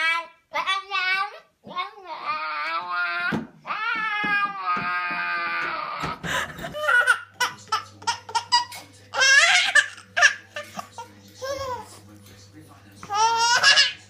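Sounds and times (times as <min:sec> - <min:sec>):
baby giggling: 0:03.9 - 0:12.0, 0:13.0 - 0:14.0
woman laughing: 0:06.1 - 0:07.3.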